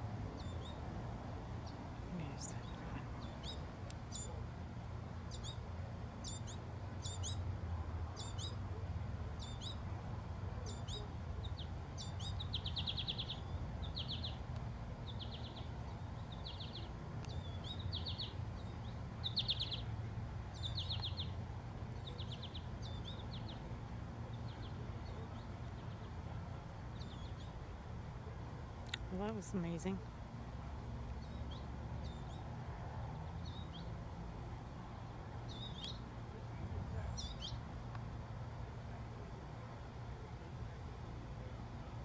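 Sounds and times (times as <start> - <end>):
bird chirping: 0.4 - 0.8, 1.6 - 4.4, 5.3 - 5.6, 6.2 - 7.5, 8.1 - 8.6, 9.4 - 9.9, 10.6 - 14.4, 15.0 - 19.9, 20.5 - 23.7, 26.9 - 27.6, 31.2 - 32.5, 35.5 - 36.0, 37.0 - 37.6.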